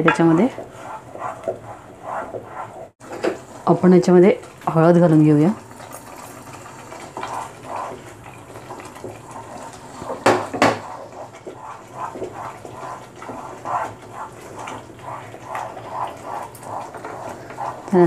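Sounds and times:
spatula scraping pan: 0.0 - 3.5, 5.8 - 18.0
spatula knocking on pan: 10.1 - 11.0.

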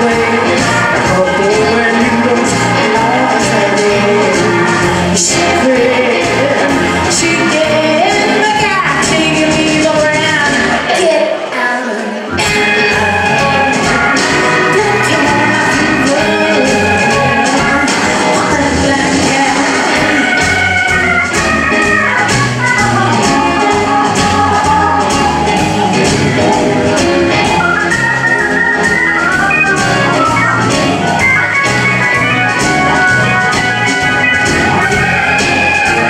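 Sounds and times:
electric organ lead: 0.0 - 10.8, 12.3 - 36.0
steady drum beat: 0.0 - 10.8, 12.4 - 36.0
bass: 0.0 - 11.2, 12.3 - 36.0.

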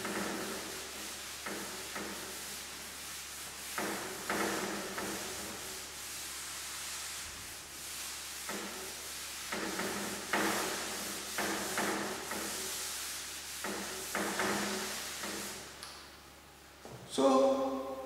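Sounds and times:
duster rubbing on chalkboard: 0.0 - 15.8.

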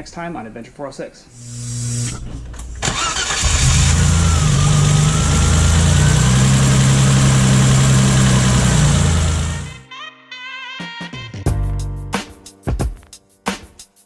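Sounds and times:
power steering pump whine: 1.5 - 9.8
car engine idling: 2.8 - 9.8.

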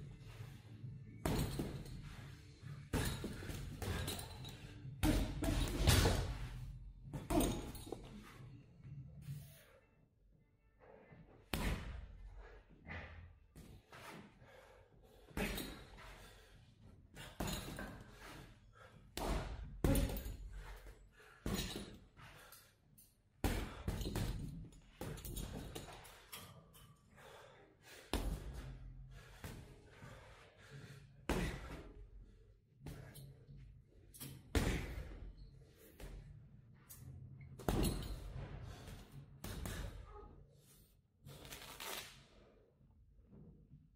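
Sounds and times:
gloves punching heavy bag: 1.2 - 2.0, 2.8 - 8.0, 11.5 - 12.1, 19.2 - 20.7, 23.4 - 25.9, 31.3 - 31.9, 34.5 - 35.2, 37.6 - 40.0.

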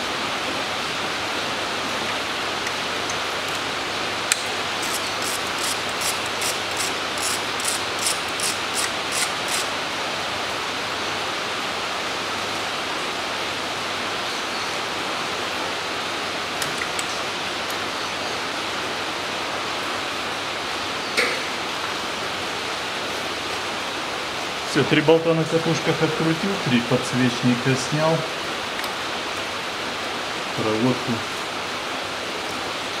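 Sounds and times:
rain hiss: 0.0 - 33.0
hand ratchet clicking: 4.3 - 9.7.

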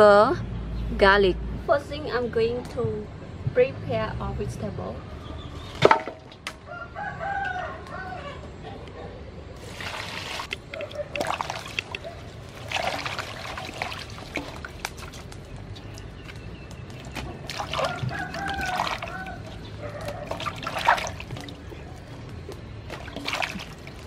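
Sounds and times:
water poured into metal basin: 9.6 - 15.3, 17.0 - 21.7, 22.9 - 24.0
water splashing and trickling: 9.6 - 24.0.

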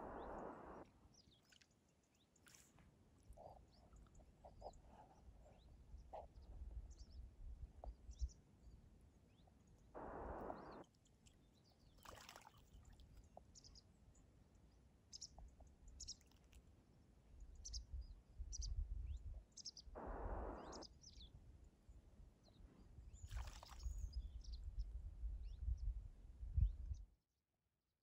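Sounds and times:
small birds chirping: 0.0 - 26.0
wind rumble on microphone: 4.6 - 8.4, 17.4 - 21.6, 23.0 - 27.1
bird splashing in water: 12.0 - 13.2, 23.3 - 23.9.

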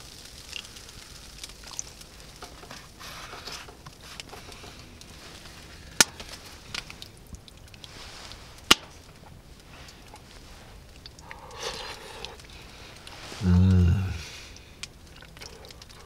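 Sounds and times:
rustling and handling sounds: 1.8 - 13.4.

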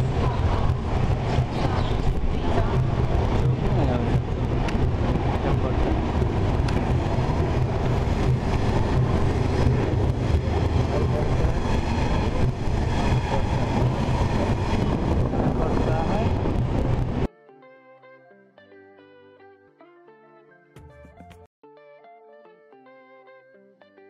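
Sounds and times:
railway platform ambience rumble: 0.0 - 17.3.

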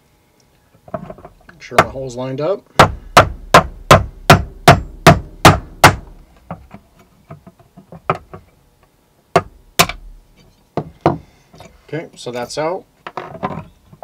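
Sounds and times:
hammer tapping a punch: 2.8 - 6.1.

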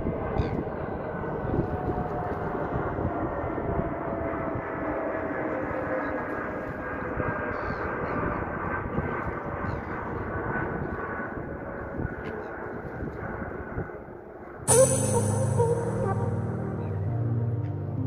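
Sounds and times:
wind rumble on microphone: 0.0 - 14.3
faint falling tones: 14.7 - 18.0.

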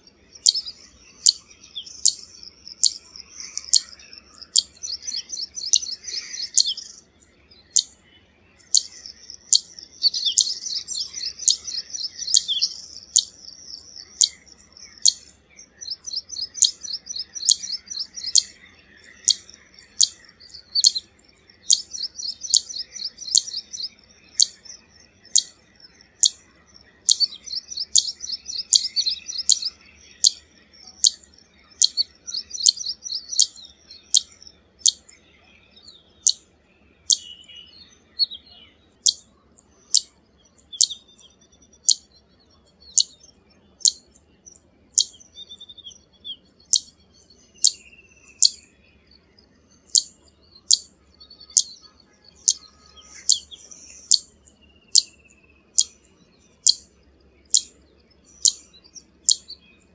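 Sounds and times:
bird chattering: 0.4 - 7.0, 8.7 - 13.4, 14.0 - 24.6, 25.2 - 35.1, 52.4 - 54.3.

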